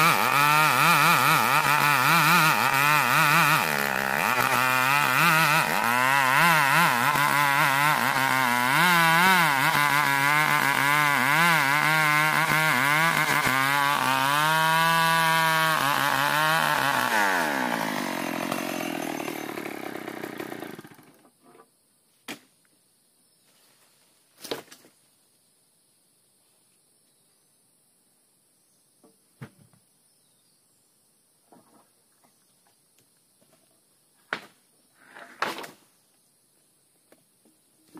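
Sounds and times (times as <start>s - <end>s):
chainsaw running: 0.0s - 21.2s.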